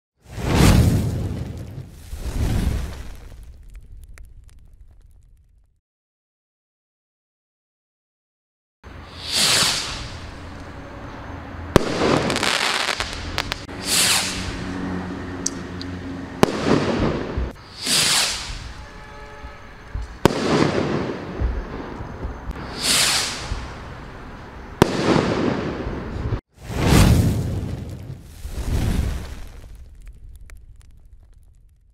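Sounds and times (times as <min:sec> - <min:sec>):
firework rocket launch whoosh: 0:00.2 - 0:03.4, 0:09.0 - 0:10.5, 0:11.8 - 0:15.0, 0:16.4 - 0:19.0, 0:22.5 - 0:24.0, 0:24.8 - 0:29.8
firework bang: 0:09.1 - 0:10.4, 0:11.8 - 0:14.7, 0:16.4 - 0:24.0, 0:24.8 - 0:31.5.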